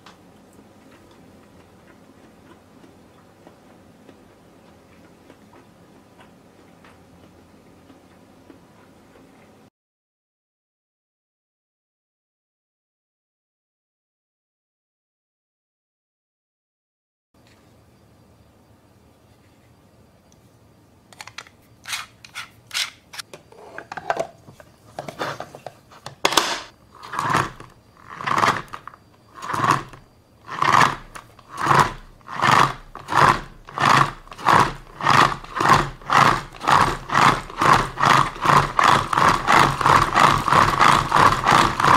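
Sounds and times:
hand-cranked spinner whirring rattle: 27.0s - 41.9s.

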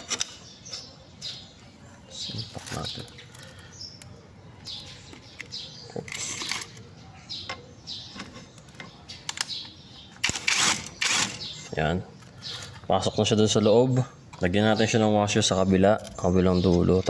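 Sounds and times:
metal clicks taps and scrapes: 4.0s - 10.4s.

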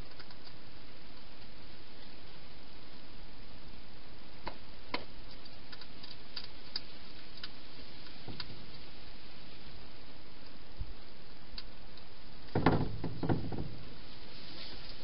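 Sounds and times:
steady hiss: 0.0s - 15.0s
hedgehog eating crunches: 5.2s - 8.8s.

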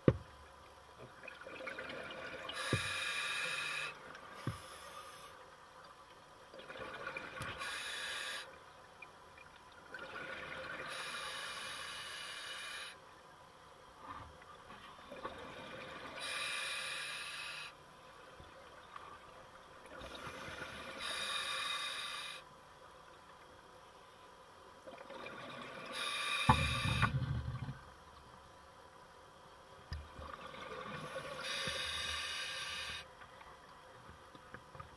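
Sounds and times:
diver breathing through regulator: 2.6s - 5.4s, 16.2s - 17.8s, 25.9s - 27.2s, 31.2s - 33.1s
low rumble of bubbles: 26.6s - 27.9s.

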